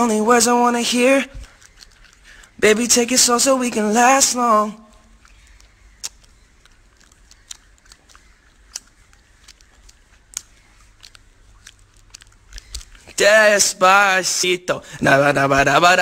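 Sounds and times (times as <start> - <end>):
sharp clicks: 4.9 - 13.2.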